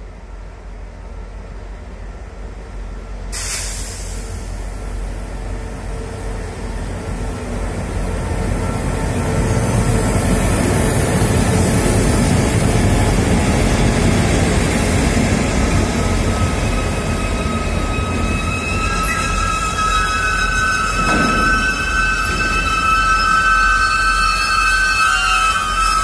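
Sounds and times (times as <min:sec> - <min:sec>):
locomotive engine and rail rumble: 0:00.0 - 0:26.0
high wheel squeal: 0:15.8 - 0:26.0.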